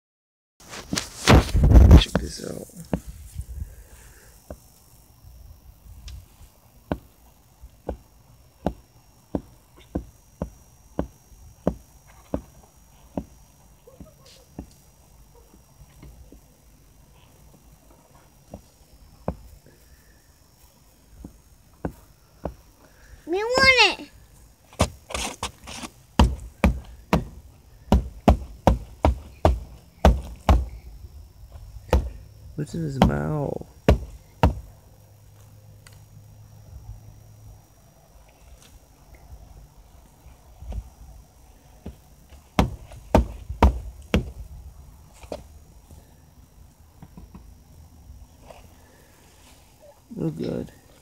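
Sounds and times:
sharp knocks: 0:25.8 - 0:30.7, 0:31.9 - 0:32.2, 0:33.9 - 0:34.7, 0:42.6 - 0:44.4
sharp short knocks: 0:31.9 - 0:32.2.

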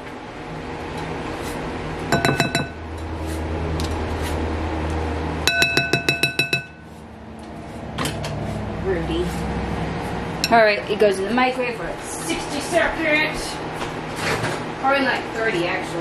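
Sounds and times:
low steady hum: 0:00.0 - 0:13.7
utensil tapping against a bowl: 0:02.1 - 0:02.8, 0:05.5 - 0:06.8.

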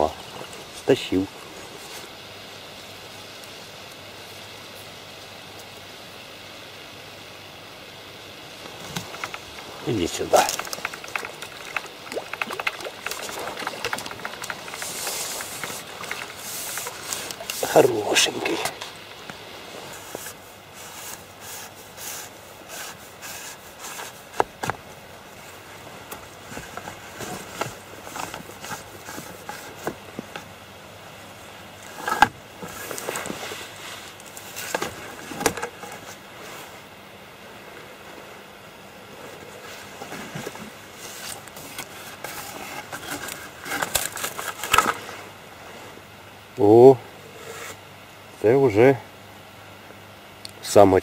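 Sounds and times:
fishing rod handling rustling: 0:08.6 - 0:19.0, 0:40.0 - 0:45.1.

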